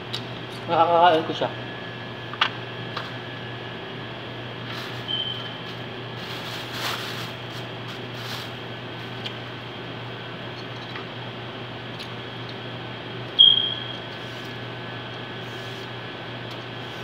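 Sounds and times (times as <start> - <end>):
kitchen ventilation hum: 0.0 - 17.0
high-pitched ping: 13.4 - 14.0.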